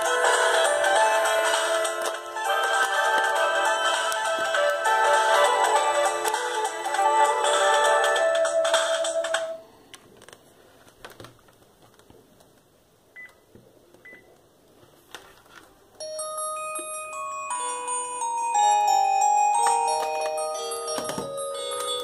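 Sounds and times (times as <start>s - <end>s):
phone ringtone: 0.0s - 9.6s, 16.0s - 22.0s
bell-like mallet ringtone melody: 16.0s - 22.0s.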